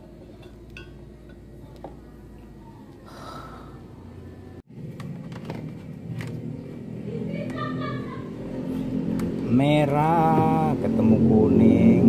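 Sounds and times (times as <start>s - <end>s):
steady low hum: 0.0s - 5.1s.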